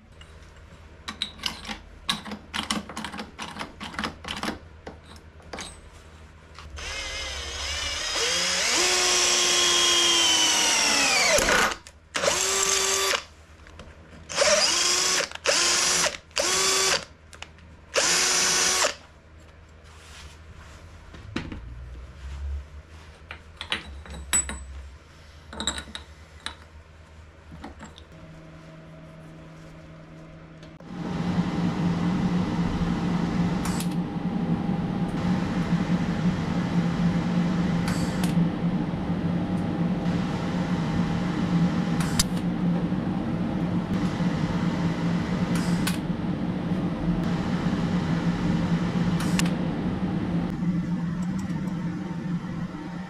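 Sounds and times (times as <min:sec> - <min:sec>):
steady hum: 0:06.0 - 0:17.0, 0:26.2 - 0:53.0
electric drill running: 0:06.8 - 0:13.3, 0:14.3 - 0:17.1, 0:18.0 - 0:19.0.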